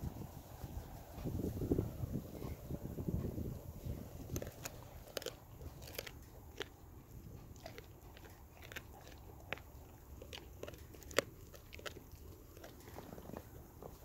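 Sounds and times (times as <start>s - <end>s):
dog teeth crunching fish: 3.9s - 14.0s.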